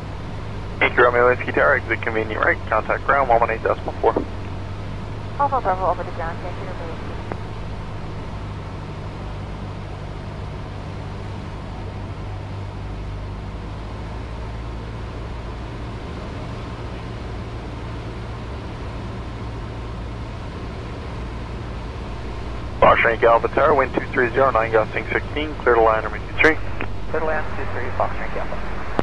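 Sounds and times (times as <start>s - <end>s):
airflow noise: 0.0s - 8.4s, 22.0s - 29.0s
small plane engine droning: 0.0s - 29.0s.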